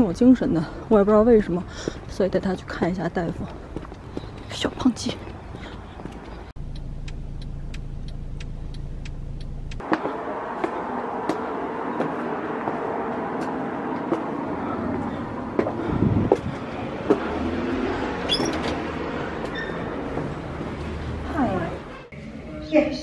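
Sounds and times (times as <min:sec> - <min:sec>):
footsteps climbing steps: 0:01.0 - 0:17.6.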